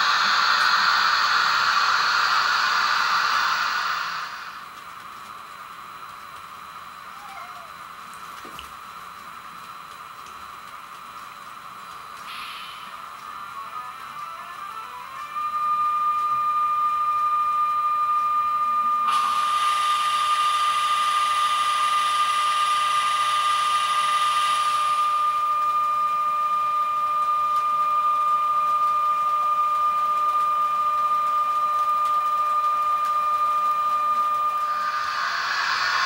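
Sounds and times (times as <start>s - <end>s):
hiss: 0.0s - 4.8s, 12.1s - 13.8s, 18.8s - 36.0s
electric locomotive whine: 0.0s - 36.0s.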